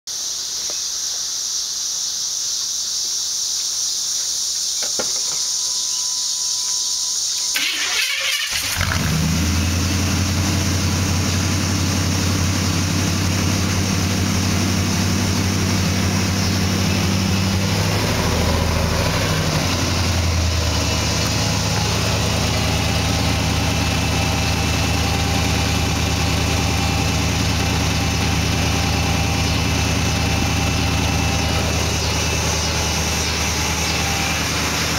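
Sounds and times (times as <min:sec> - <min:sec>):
engine starting: 0:07.5 - 0:09.7
engine idling: 0:07.5 - 0:34.9
engine revving: 0:07.6 - 0:34.9.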